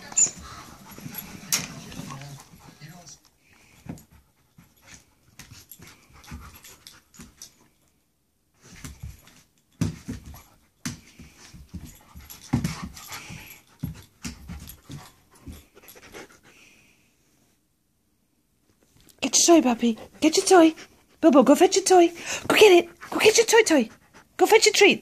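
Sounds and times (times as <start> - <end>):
paws and toys scuffing: 0.0 - 3.0, 3.6 - 7.6, 8.6 - 16.5
dog panting and sniffing: 0.0 - 7.7, 8.6 - 16.9, 19.2 - 24.9.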